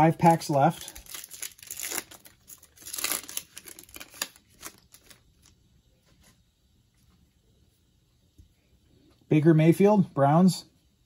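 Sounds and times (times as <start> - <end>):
foil wrapper tearing and crinkling: 0.0 - 5.5.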